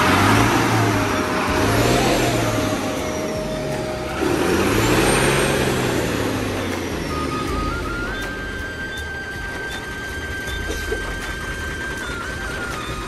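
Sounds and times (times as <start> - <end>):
truck engine revving hard: 0.0 - 13.0.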